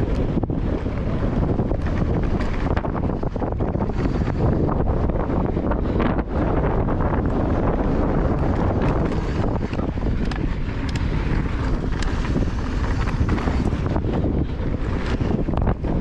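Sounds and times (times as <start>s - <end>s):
bike rattling and clicking: 0.0s - 16.0s
wind rushing over microphone: 0.0s - 16.0s
tyres rolling over dirt and stones: 8.1s - 16.0s.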